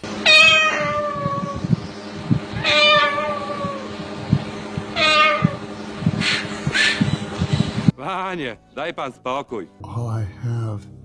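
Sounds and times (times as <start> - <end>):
cockatoo imitating cat meow: 0.2 - 1.7, 2.5 - 3.9, 4.9 - 5.6.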